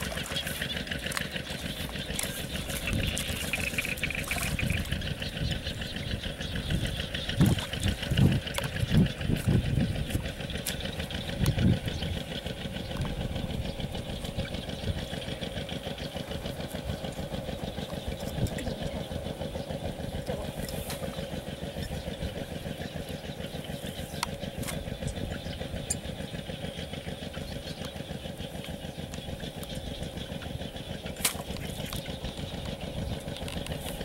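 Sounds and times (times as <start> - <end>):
pulsing engine drone: 0.0 - 34.0
hoe chopping into mud: 31.2 - 31.5.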